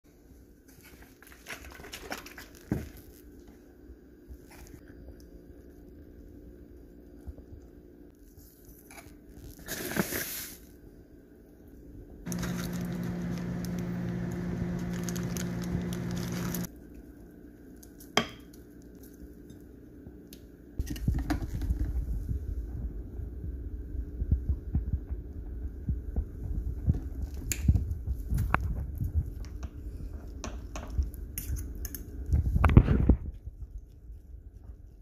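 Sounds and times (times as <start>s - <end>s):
steady hum: 12.2s - 16.7s
low handling rumble: 12.3s - 16.7s
plastic bag rustling: 12.3s - 16.7s.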